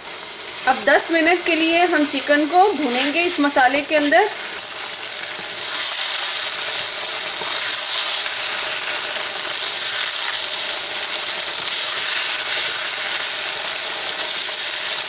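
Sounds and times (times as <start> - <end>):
chicken sizzling in oil: 0.0 - 15.0
wooden spatula scraping wok: 1.4 - 9.0.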